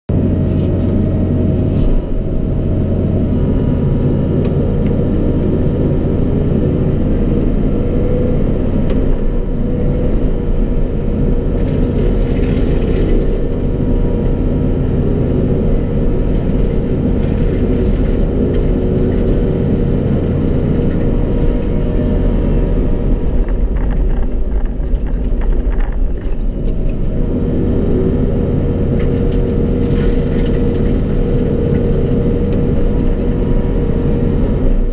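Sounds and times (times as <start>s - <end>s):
diesel engine running under load: 0.1s - 34.9s
sharp knocks and crackles: 11.5s - 14.4s, 16.1s - 22.2s, 22.8s - 27.2s.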